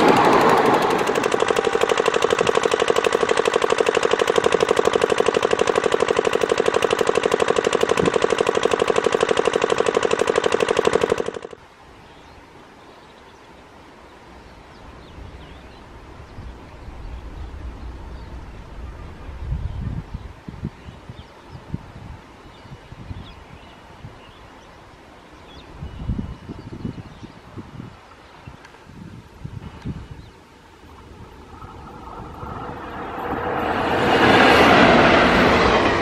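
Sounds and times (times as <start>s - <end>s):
train wheels rattling on rails: 0.0s - 11.5s, 31.4s - 36.0s
faint low rumble: 30.8s - 36.0s.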